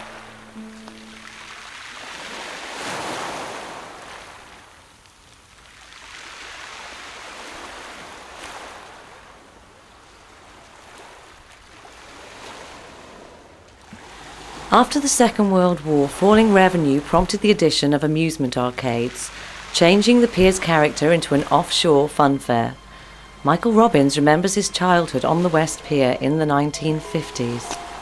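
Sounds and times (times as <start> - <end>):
sea waves washing in: 0.0 - 28.0.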